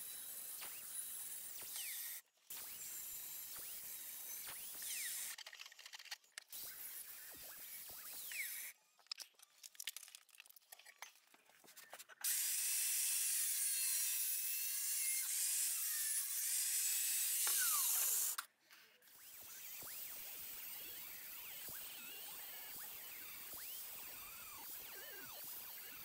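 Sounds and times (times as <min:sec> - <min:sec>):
angle grinder cutting steel: 0:12.3 - 0:18.4.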